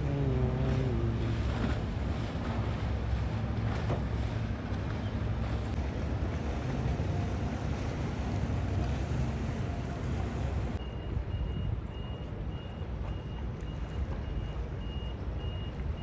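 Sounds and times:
boat engines rumbling: 0.0s - 16.0s
faint high beeps: 10.8s - 16.0s.

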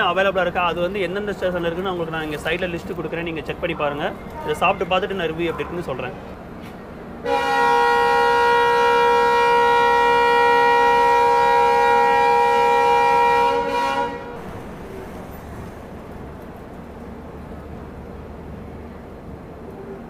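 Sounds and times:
locomotive horn blast: 7.2s - 15.2s.

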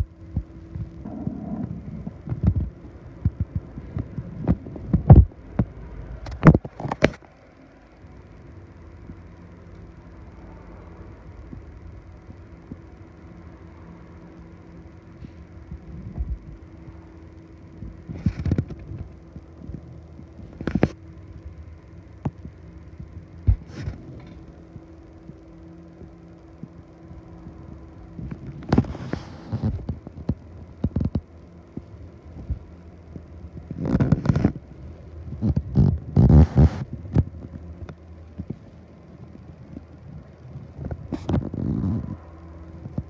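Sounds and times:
faint steady hum: 0.0s - 43.0s.

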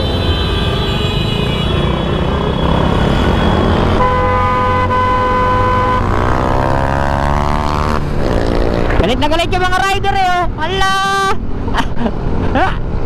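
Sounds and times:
vehicle horns honking: 0.0s - 6.7s
road noise: 0.0s - 13.0s
motorcycle engines running: 1.8s - 9.9s.

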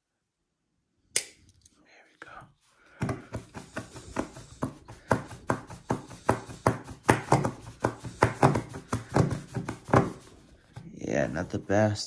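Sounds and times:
hand sawing wooden board: 3.2s - 11.6s.

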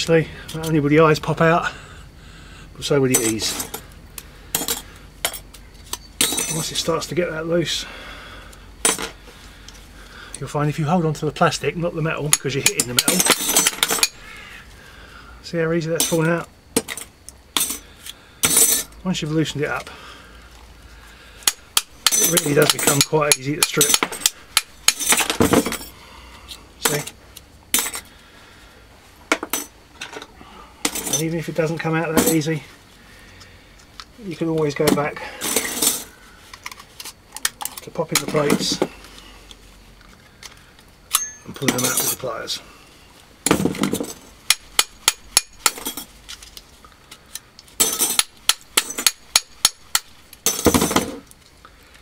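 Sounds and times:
steel plates clinking: 4.5s - 6.8s, 12.3s - 14.2s, 21.5s - 26.0s, 41.1s - 42.3s, 47.8s - 51.2s
thin steel plates clattering: 4.6s - 6.8s.

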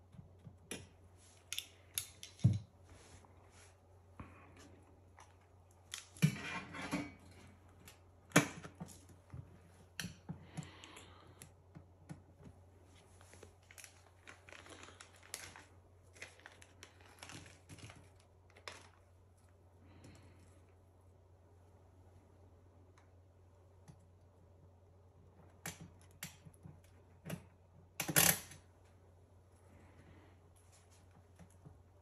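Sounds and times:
plastic bag crinkling: 13.2s - 19.6s.

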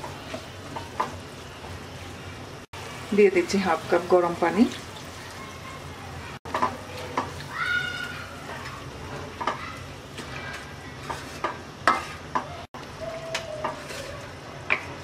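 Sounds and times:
food sizzling: 0.0s - 15.0s
spoon scraping a steel pan: 10.2s - 12.5s, 13.3s - 14.9s.

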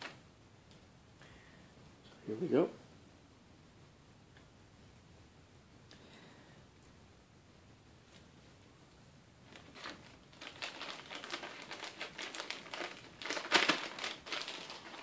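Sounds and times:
plastic bag crinkling: 9.4s - 15.0s.

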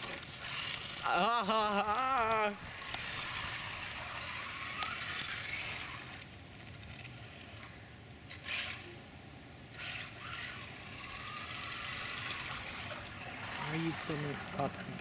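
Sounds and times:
electric motor whine: 1.9s - 8.9s, 9.7s - 15.0s
rc car splashing through water: 9.8s - 15.0s.

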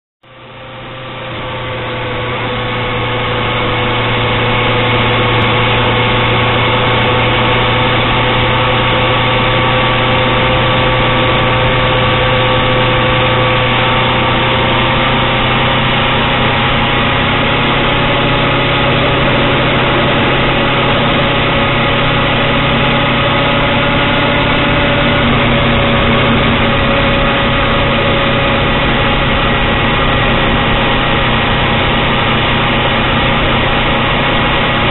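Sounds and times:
engine and road hum: 0.2s - 34.9s.

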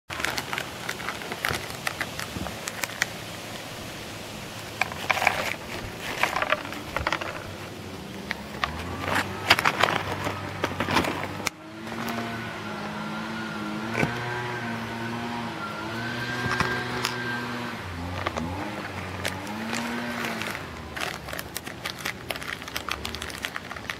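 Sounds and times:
peanuts clattering on wooden boards: 0.1s - 3.2s, 4.7s - 7.6s, 8.2s - 12.3s, 18.0s - 23.9s.

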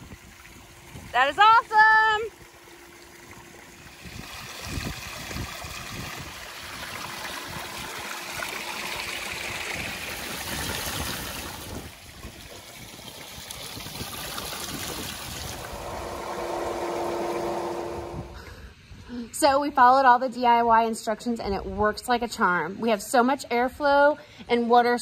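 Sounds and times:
water jet splashing into pool: 0.0s - 18.4s
pump motor hum: 0.0s - 18.7s.

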